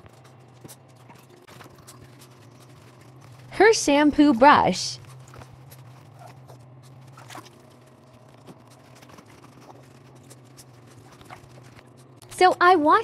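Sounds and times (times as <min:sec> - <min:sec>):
brush scrubbing wet fur: 0:00.0 - 0:12.2
steady low hum: 0:00.0 - 0:13.0.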